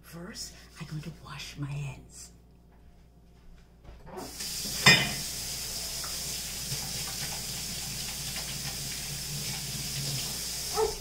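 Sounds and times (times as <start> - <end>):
tap running into sink: 4.2 - 10.9.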